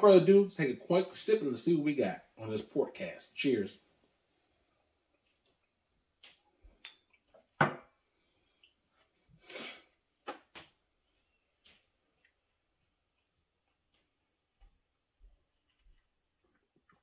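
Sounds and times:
glass set down on glass tabletop: 7.6s - 7.9s.

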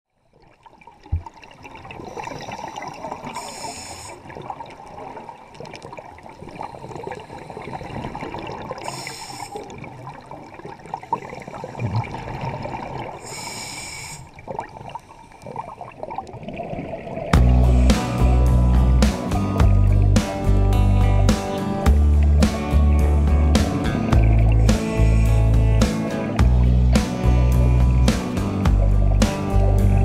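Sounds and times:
underwater rush of bubbles: 0.3s - 20.4s, 23.1s - 25.4s
scuba breathing through regulator: 2.1s - 4.3s, 6.5s - 9.8s, 13.2s - 15.6s, 17.4s - 19.9s, 23.8s - 26.8s.

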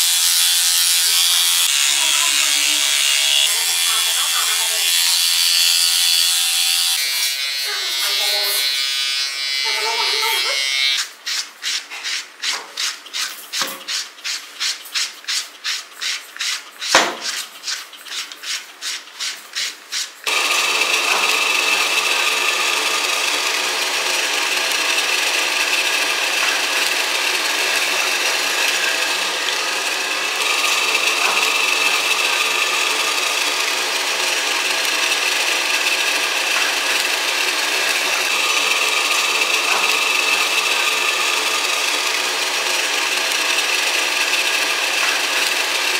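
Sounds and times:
pet blow dryer whining: 0.0s - 11.1s, 20.2s - 45.9s
sharp knock: 17.0s - 17.3s.

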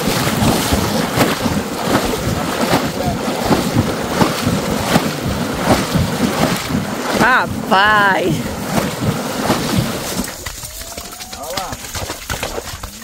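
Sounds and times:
wind buffeting microphone: 0.0s - 10.3s
splashing through shallow water: 0.0s - 13.0s.

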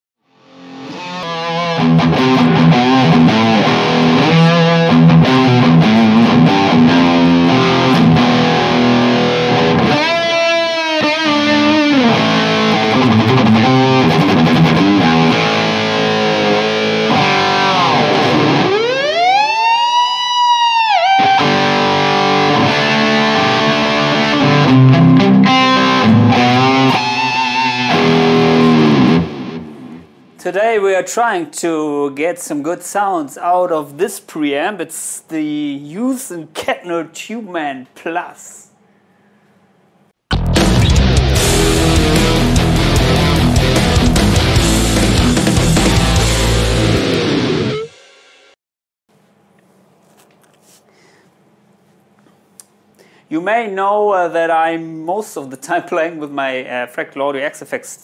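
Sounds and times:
distorted electric guitar riffing: 0.3s - 30.4s, 40.3s - 48.0s.

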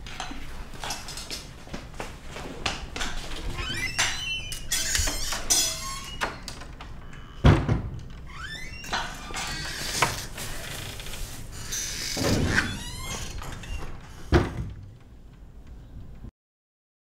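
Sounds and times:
wooden door creaking: 3.0s - 15.5s
door shutting thud: 7.4s - 8.0s, 12.0s - 14.9s.

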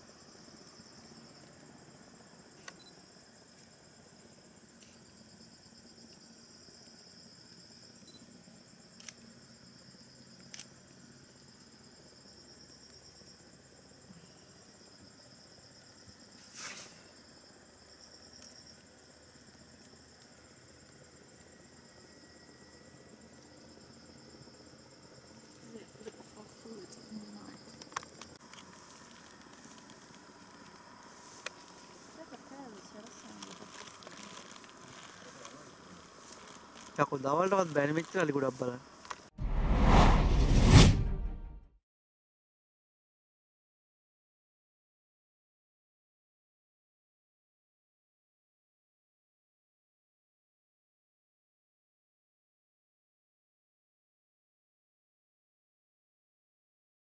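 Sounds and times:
crickets trilling: 0.0s - 39.3s.

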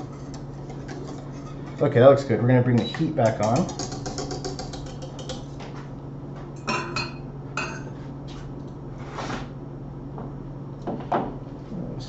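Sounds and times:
whisk tapping a metal saucepan: 0.0s - 5.6s.

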